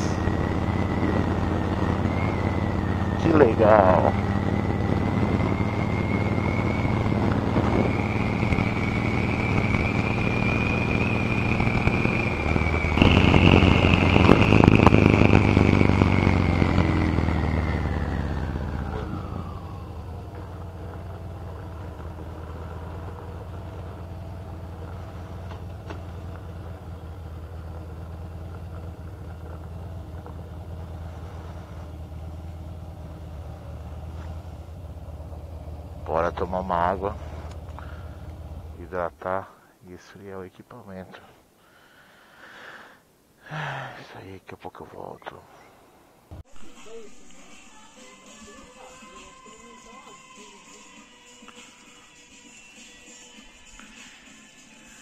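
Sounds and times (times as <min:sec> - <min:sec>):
motorcycle engine running: 0:00.0 - 0:39.2.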